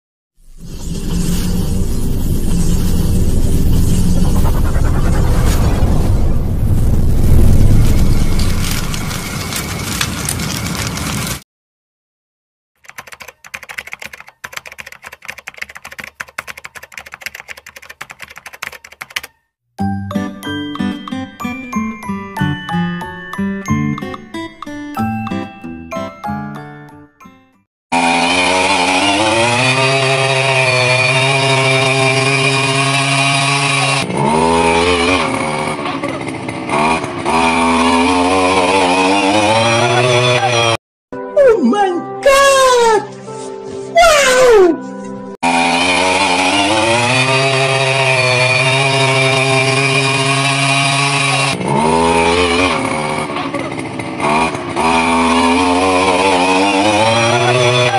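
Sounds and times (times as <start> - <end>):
keyboard typing clicks: 12.8 - 19.4
light music with plucked notes: 19.8 - 27.4
small engine running: 27.9 - 40.8, 45.4 - 57.9.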